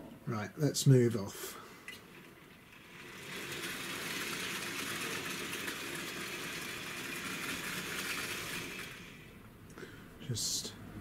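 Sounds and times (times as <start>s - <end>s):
wheels rolling on metal track: 2.2s - 9.4s
model train motor running: 2.8s - 9.4s.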